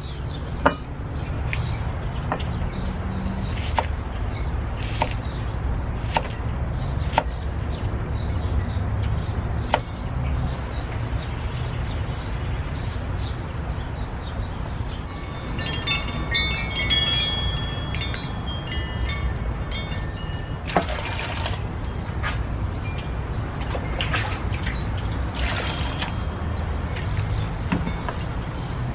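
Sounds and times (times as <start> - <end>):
birds chirping: 0.0 - 28.9
water splash: 20.7 - 21.6, 23.6 - 26.2.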